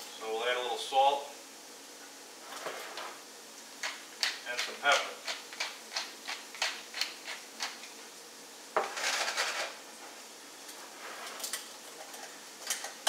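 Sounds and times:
frying pan scraping: 2.4 - 3.2, 8.8 - 9.8, 10.8 - 11.6.

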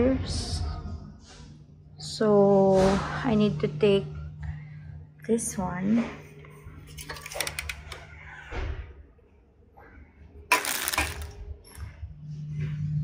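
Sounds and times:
steady low hum: 0.0 - 13.0
shopping trolley being handled: 6.9 - 7.9, 10.5 - 11.4
drink cans clattering: 10.5 - 11.3.

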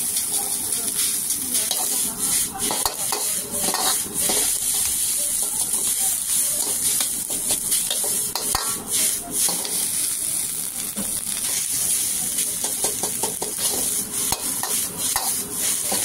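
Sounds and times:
frying sizzle: 0.0 - 16.0
metal ladle scraping a wok: 1.7 - 6.0, 13.4 - 16.0.

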